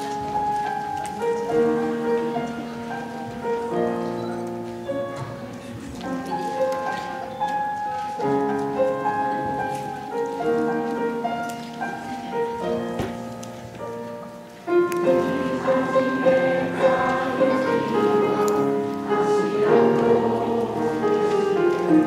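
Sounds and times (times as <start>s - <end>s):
piano accompaniment: 0.0s - 22.0s
choir singing held chords: 14.7s - 22.0s.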